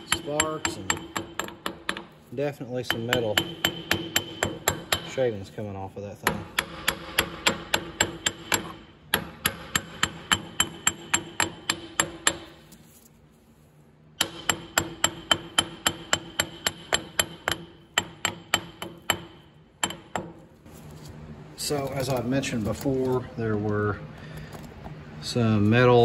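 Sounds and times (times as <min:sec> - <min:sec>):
hammer striking steel: 0:00.0 - 0:05.3, 0:06.2 - 0:12.6, 0:14.2 - 0:20.5.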